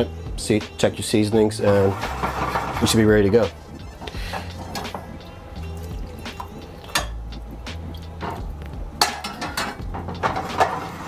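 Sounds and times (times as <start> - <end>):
background music: 0.0 - 11.0
spoon scraping and knocking pan: 8.2 - 11.0.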